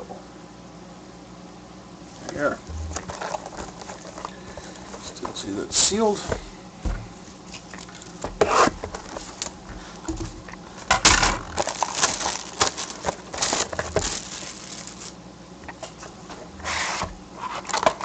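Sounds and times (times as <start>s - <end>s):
plastic wrap crinkling and tearing: 11.1s - 15.2s.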